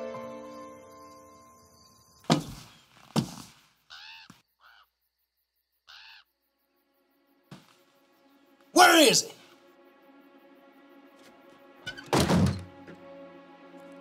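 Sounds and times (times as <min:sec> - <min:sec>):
crow cawing: 0:03.9 - 0:05.0, 0:05.8 - 0:06.4.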